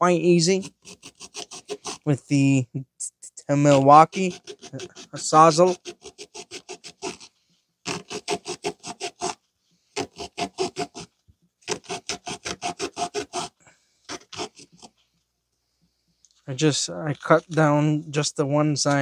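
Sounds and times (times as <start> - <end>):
reciprocating saw cutting metal: 3.6 - 7.3, 7.9 - 9.4, 10.0 - 11.1, 11.7 - 14.9.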